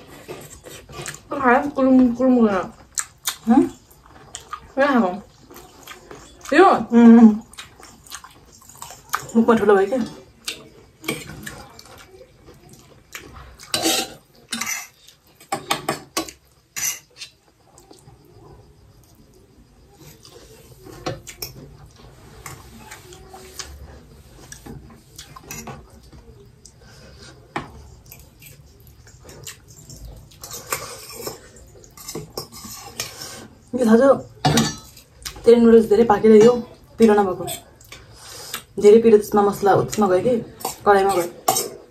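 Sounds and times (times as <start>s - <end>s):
cutlery clinking on metal plates: 13.6s - 17.4s, 24.4s - 25.9s, 29.3s - 33.4s, 34.4s - 35.5s, 40.5s - 41.9s.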